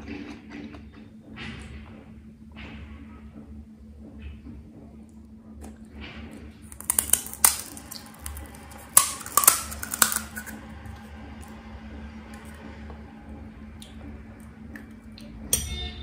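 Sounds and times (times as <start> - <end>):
fried shell cracking: 6.7 - 10.6.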